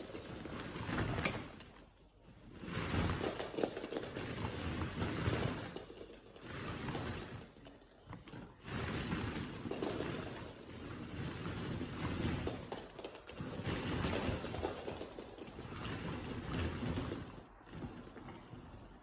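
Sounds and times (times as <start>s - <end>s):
plastic balls rustling and clattering: 0.0s - 19.0s.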